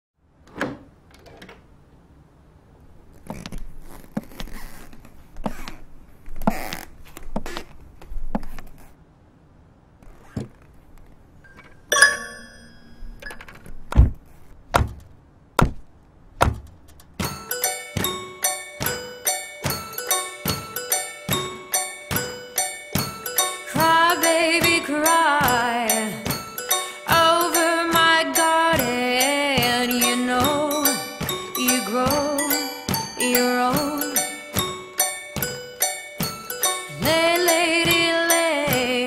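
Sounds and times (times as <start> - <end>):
bright bell-like notes: 11.9 - 13.1, 17.3 - 38.9
ringing chime: 11.9 - 13.2, 17.3 - 24.4, 25.9 - 27.8, 29.2 - 38.6
rustling: 13.4 - 15.2
percussive knocks: 14.0 - 18.2, 18.8 - 23.2.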